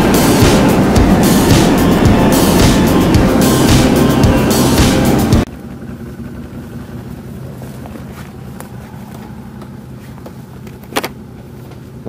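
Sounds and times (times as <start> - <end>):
music: 0.0 - 5.5
quad bike engine running: 0.0 - 12.0.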